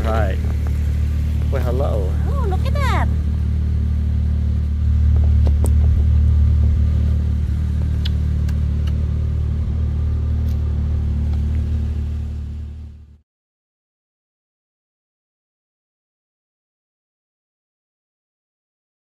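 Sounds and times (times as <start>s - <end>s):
low motor hum: 0.0s - 13.2s.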